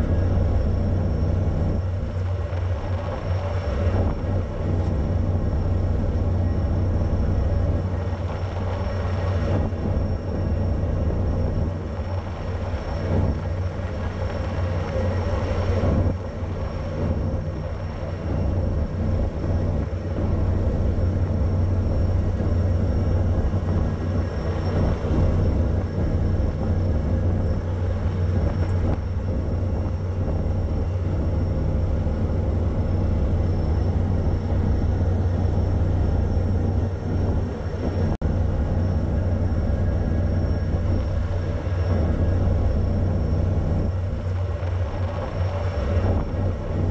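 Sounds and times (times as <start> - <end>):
ship engine drone: 0.0 - 46.9.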